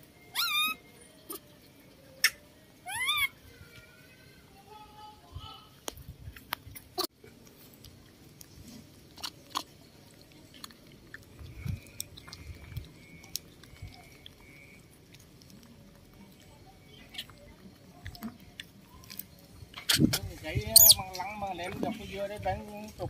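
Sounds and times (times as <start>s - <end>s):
monkeys chewing wet smacks: 7.2s - 20.2s.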